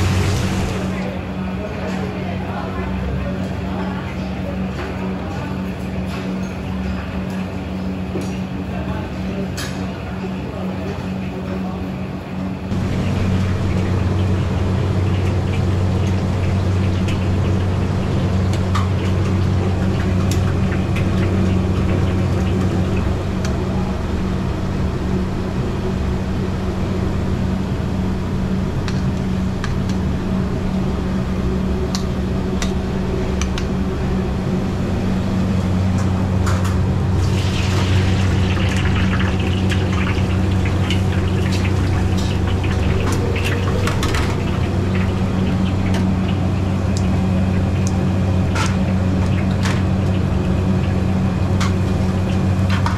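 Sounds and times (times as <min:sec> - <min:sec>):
oil sizzling in a wok: 0:00.0 - 0:01.0, 0:37.1 - 0:52.9
low machine hum: 0:00.0 - 0:52.9.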